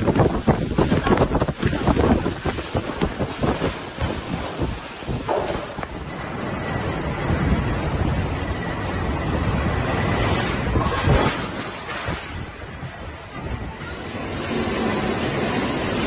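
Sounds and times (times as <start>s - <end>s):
strong wind gusts on microphone: 0.0s - 16.0s
driving rain: 13.8s - 16.0s.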